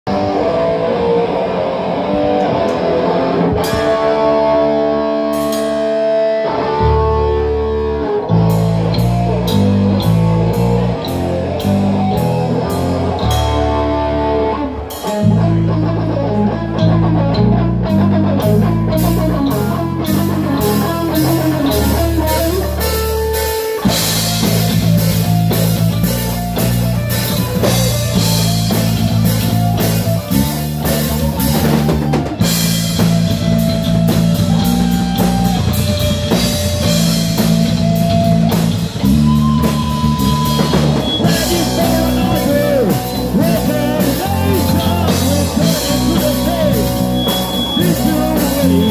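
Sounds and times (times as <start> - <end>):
heavy metal band playing: 0.1 - 48.9.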